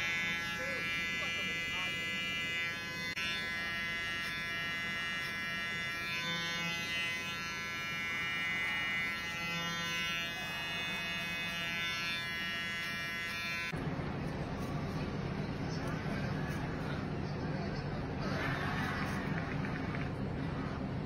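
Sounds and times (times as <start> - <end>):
electric hair clipper buzzing: 0.0 - 13.8.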